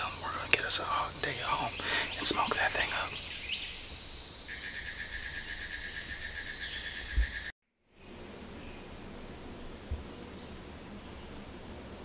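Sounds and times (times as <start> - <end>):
faint steady hiss: 0.0 - 4.5
cricket chirping: 0.0 - 11.3
high-pitched insect buzz: 0.0 - 12.0.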